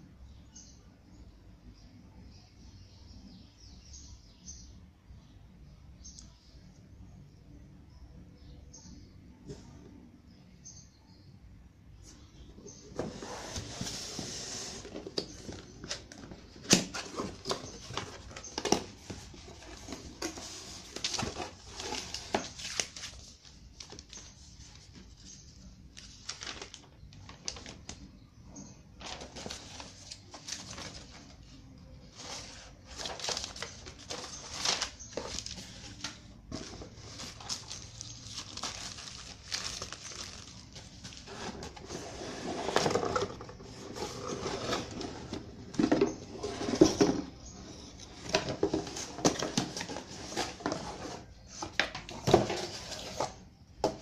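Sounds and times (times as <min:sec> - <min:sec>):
cardboard and paper rustling: 0:12.8 - 0:28.1, 0:29.0 - 0:54.0.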